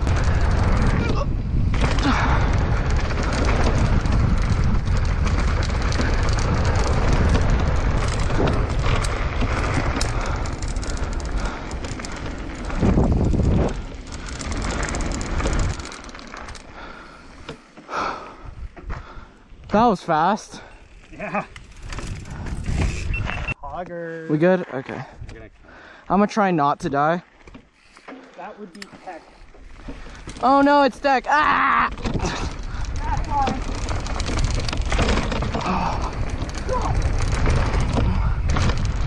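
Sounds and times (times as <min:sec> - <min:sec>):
wind rumbling on microphone: 0:00.0 - 0:20.0, 0:20.6 - 0:23.7, 0:29.3 - 0:39.0
bike tyres rattling over ground: 0:00.0 - 0:23.6, 0:24.5 - 0:39.0.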